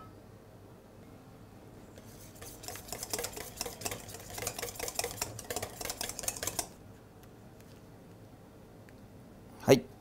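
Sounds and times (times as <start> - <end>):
whisk scraping metal bowl: 2.0 - 6.8.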